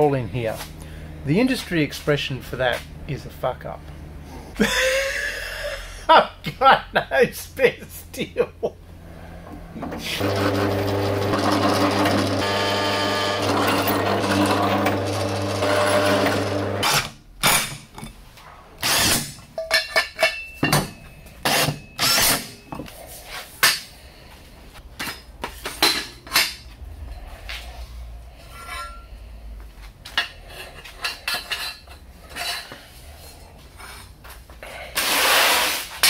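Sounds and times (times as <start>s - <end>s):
pedestal drill motor running: 9.8s - 17.0s
steel parts being handled: 19.2s - 23.9s, 24.9s - 27.2s, 28.4s - 29.1s, 30.0s - 34.1s.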